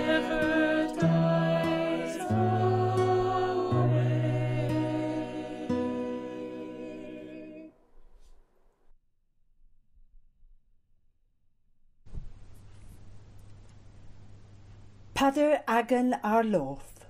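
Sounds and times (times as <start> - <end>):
slow choral chant: 0.0 - 7.8.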